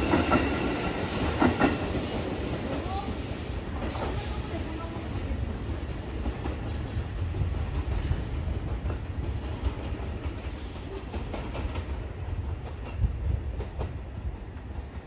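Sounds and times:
electric train rumbling: 0.0s - 15.0s
train wheel clicks: 6.2s - 15.0s.

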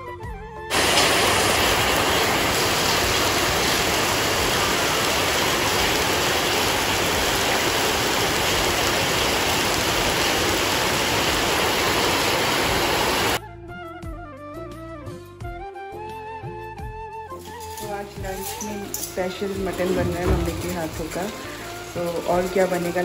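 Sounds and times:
heavy rain on pavement: 0.7s - 13.4s, 17.7s - 23.0s.

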